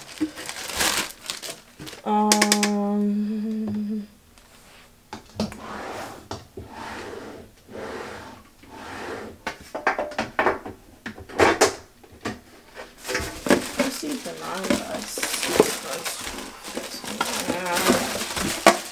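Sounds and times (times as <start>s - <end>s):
plastic organizers scraping and clicking: 5.2s - 18.9s.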